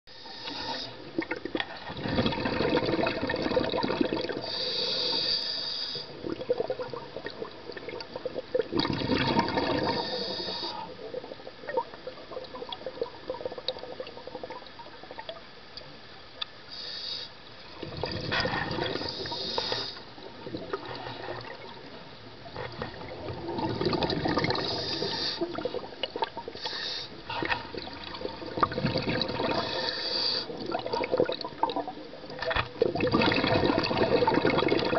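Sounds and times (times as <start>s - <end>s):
exhaled bubbles underwater: 0.6s - 5.3s, 5.9s - 15.6s, 17.6s - 34.9s.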